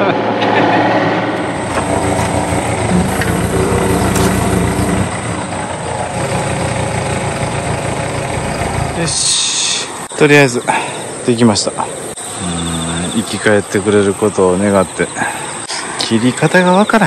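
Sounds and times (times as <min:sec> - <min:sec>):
excavator diesel engine running: 0:00.0 - 0:10.2.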